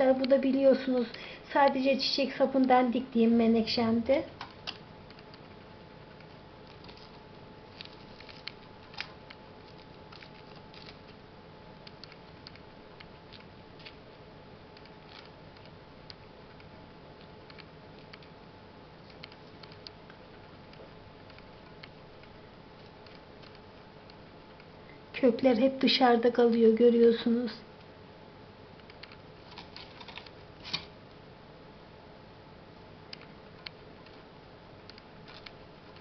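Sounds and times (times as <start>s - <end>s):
faint steady hum: 0.0s - 36.0s
small clicks and scraping in soil: 6.7s - 11.1s, 14.8s - 15.8s.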